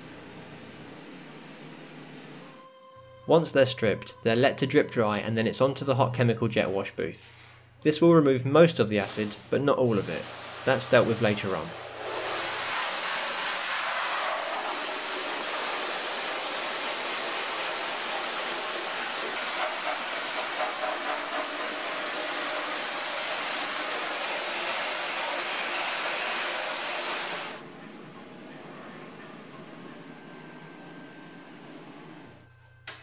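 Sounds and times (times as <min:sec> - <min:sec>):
pressure-washer water spray hissing: 0:09.0 - 0:27.6.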